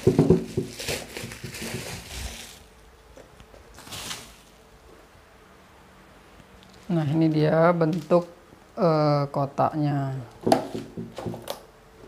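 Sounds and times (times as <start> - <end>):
bubble wrap crinkling: 0.0 - 2.8, 3.7 - 4.6
soft knocks: 10.4 - 11.5.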